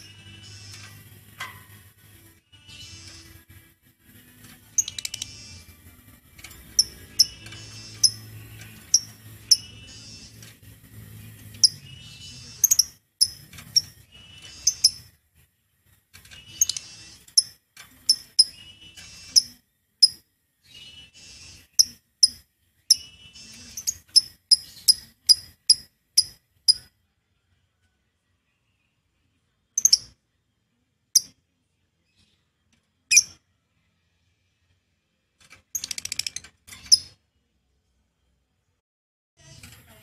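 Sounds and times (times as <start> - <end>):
lovebird chirping: 4.8 - 5.8, 6.4 - 10.5, 11.1 - 15.2, 16.3 - 26.9, 29.8 - 30.2.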